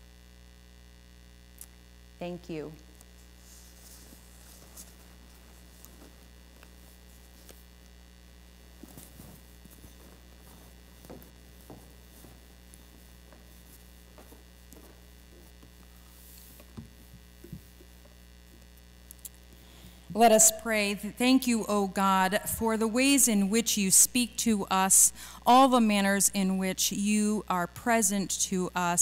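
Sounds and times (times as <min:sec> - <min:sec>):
electrical mains hum: 0:00.0 - 0:29.0
soft footsteps: 0:03.0 - 0:07.9, 0:08.5 - 0:19.5.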